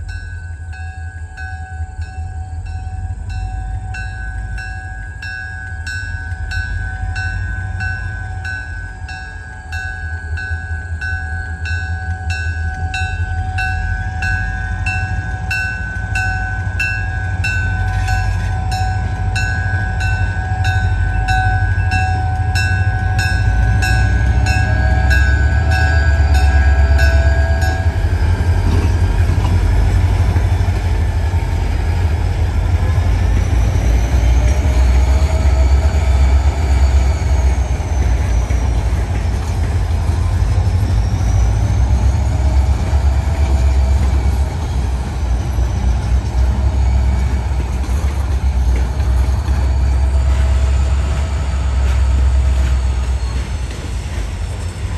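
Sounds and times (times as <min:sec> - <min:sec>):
bell ringing: 0:00.0 - 0:29.0
diesel locomotives rumbling: 0:00.0 - 0:54.9
faint gliding squeals: 0:00.0 - 0:54.9.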